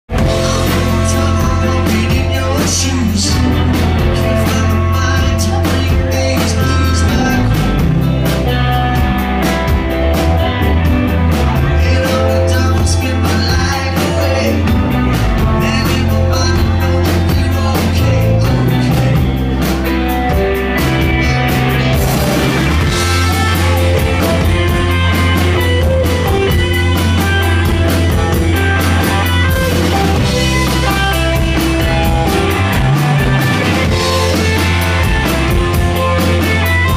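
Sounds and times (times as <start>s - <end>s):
rock band playing: 0.1s - 36.9s
man singing: 0.2s - 8.6s, 11.4s - 19.9s, 20.6s - 24.6s.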